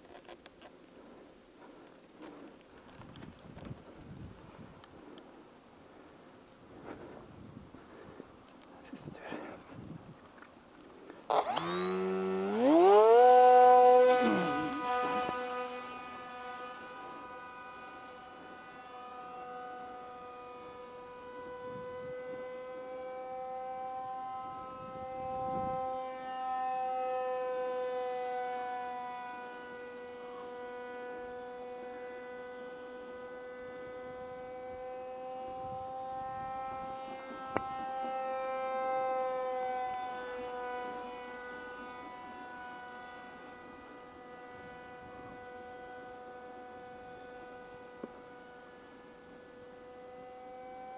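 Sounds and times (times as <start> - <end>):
model plane motor whining: 11.0 - 50.9.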